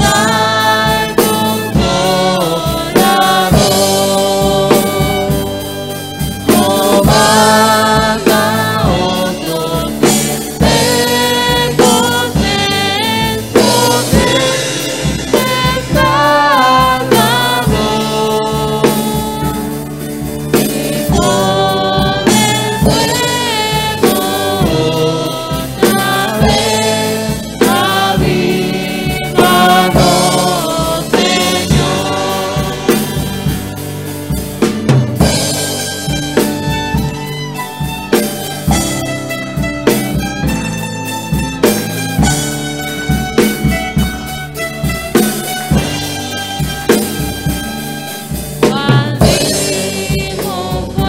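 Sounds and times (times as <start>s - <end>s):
violins: 0.0s - 17.1s, 35.2s - 49.4s
acoustic guitar: 0.0s - 51.0s
congregation singing a hymn: 0.0s - 51.0s
steady drum beat: 0.0s - 51.0s.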